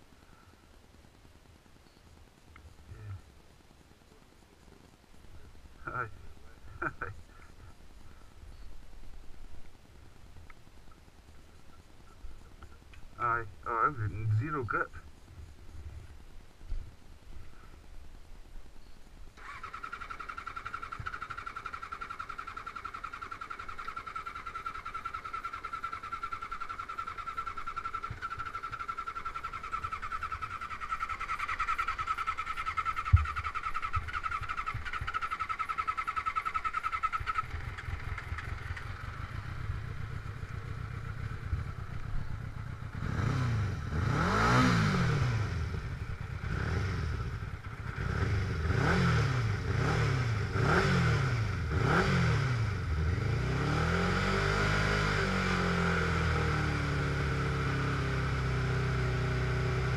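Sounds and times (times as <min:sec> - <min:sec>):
buggy engine whining and revving: 0:19.4 - 0:59.9.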